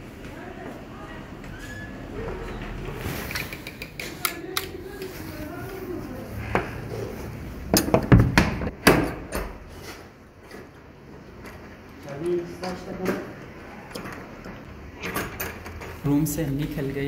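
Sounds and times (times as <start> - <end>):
loud knocks and metallic clanks: 7.7 - 9.6
wooden door shutting: 7.8 - 9.6.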